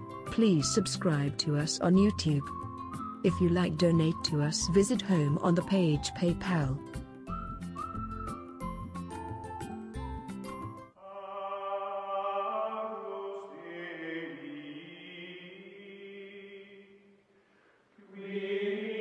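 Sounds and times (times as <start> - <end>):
chant-like sung chord: 11.0 - 17.0, 18.0 - 19.0.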